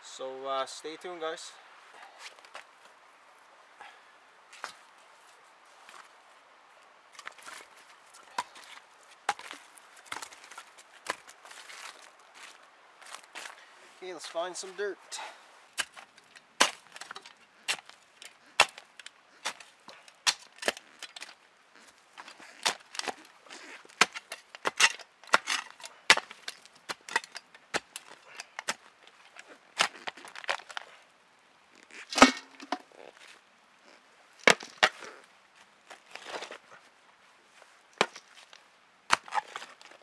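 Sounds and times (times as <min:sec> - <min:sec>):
shovel striking earth: 0:15.8 - 0:30.9, 0:32.0 - 0:32.9, 0:34.4 - 0:35.2, 0:38.0 - 0:40.0.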